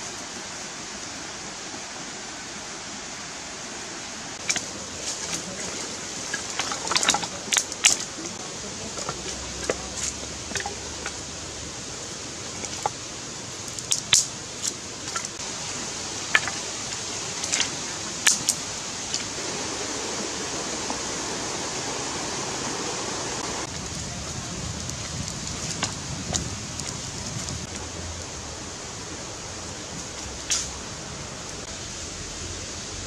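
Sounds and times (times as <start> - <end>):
fire hissing: 0.0 - 33.0
dry wood snapping: 13.7 - 15.4, 17.4 - 18.6, 30.0 - 30.8.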